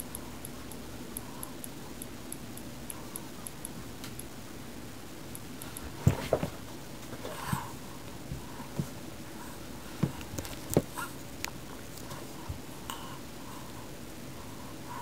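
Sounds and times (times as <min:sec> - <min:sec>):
steady hiss: 0:00.0 - 0:15.0
light clicks and taps: 0:10.0 - 0:13.0.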